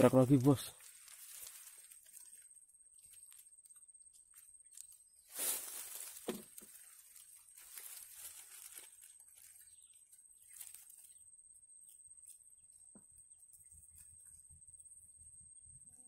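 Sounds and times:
rustling near microphone: 0:00.0 - 0:03.4, 0:05.2 - 0:11.1.

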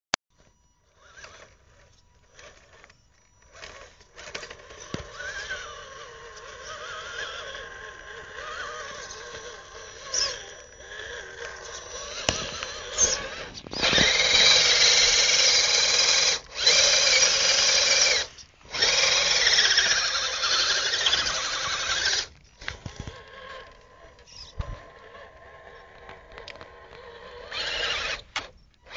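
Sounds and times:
toy truck motor whining: 0:00.4 - 0:28.9.

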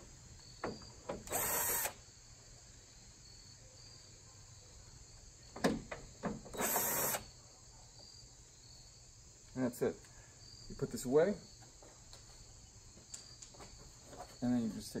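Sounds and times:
insects chirping: 0:00.0 - 0:15.0
cordless drill running: 0:01.2 - 0:02.0, 0:06.6 - 0:07.3.

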